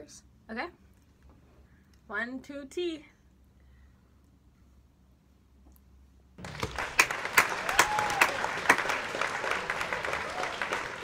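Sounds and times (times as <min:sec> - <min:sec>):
crowd applause: 0:06.4 - 0:11.0.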